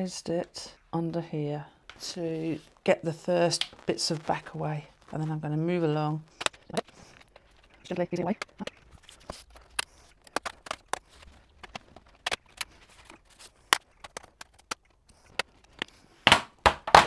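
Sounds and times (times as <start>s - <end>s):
handling noises: 1.9s - 17.0s.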